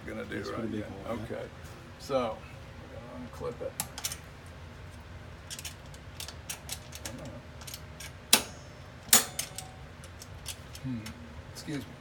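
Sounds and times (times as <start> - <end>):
metal clanks: 5.5 - 10.8.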